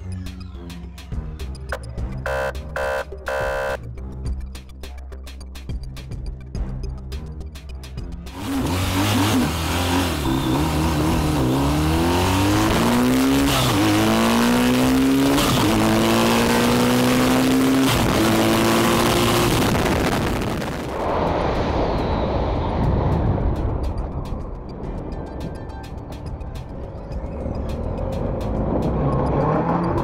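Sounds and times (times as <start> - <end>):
engine accelerating through gears: 8.3 - 20.1, 27.3 - 30.0.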